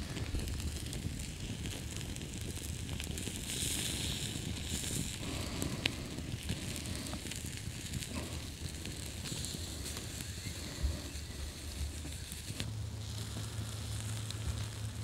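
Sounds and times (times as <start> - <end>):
burgers sizzling on grill: 0.0 - 15.0
campfire crackling and popping: 0.0 - 15.0.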